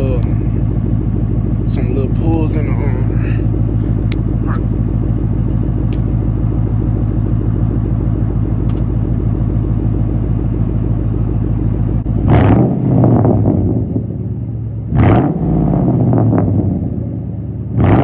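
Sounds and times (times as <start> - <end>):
car engine idling and revving: 0.0 - 18.0.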